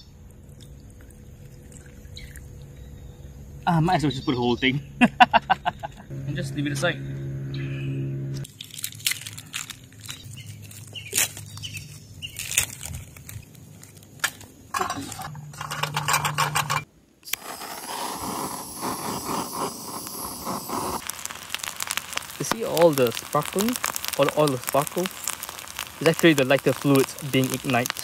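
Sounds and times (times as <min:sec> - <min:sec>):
crackling sparks: 0:08.4 - 0:28.0
plastic bag rustling: 0:08.5 - 0:15.3
torch lighter hissing: 0:17.2 - 0:28.0.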